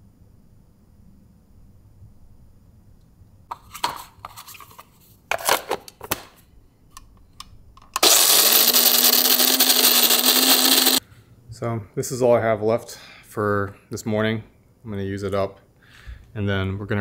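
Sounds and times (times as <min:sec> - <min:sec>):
coffee grinder motor grinding beans: 0:08.0 - 0:11.0.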